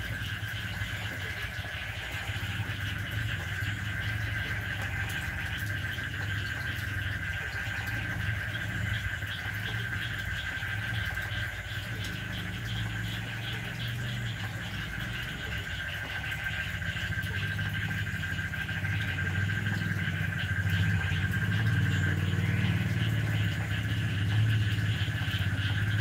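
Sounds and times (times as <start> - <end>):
animals pulsing trill: 0.0 - 26.0.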